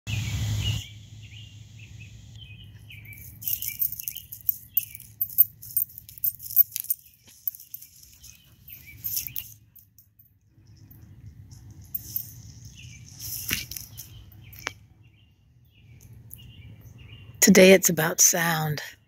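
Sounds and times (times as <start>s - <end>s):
short chirping calls: 0.1s - 5.5s.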